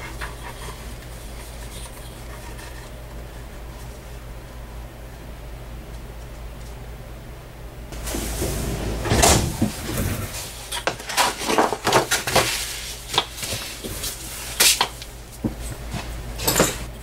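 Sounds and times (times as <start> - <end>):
knocks clicks and rustles on workbench: 10.7 - 14.0, 16.4 - 16.9.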